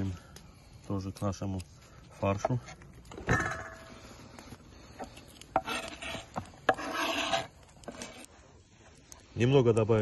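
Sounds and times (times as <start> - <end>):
knife scraping cutting board: 5.5 - 8.3.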